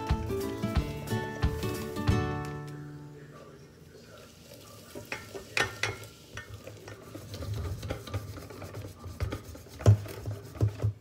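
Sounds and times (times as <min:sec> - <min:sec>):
whisk beating batter in metal bowl: 0:04.8 - 0:11.0.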